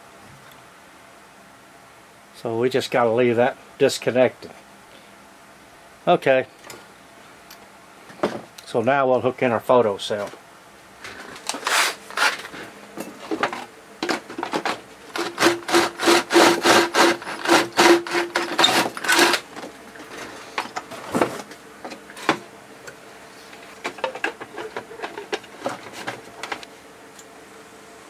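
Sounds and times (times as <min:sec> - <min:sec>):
cordless drill grinding: 0:15.1 - 0:20.6.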